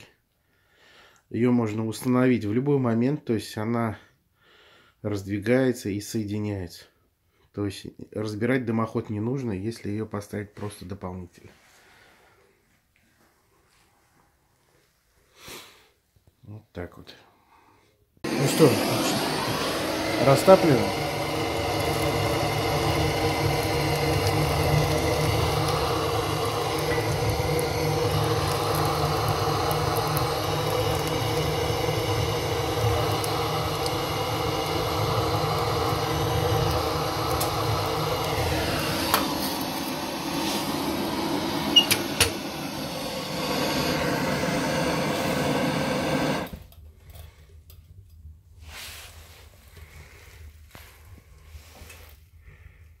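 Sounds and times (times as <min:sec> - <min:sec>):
mechanical drone: 0:18.3 - 0:46.5.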